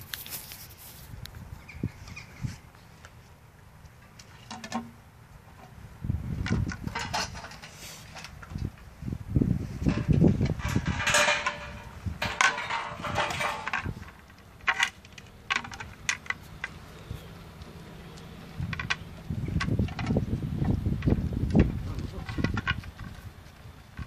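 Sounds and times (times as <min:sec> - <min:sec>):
puppies scuffling on concrete: 0:00.0 - 0:01.2, 0:09.8 - 0:24.0
low bumping: 0:09.4 - 0:14.2.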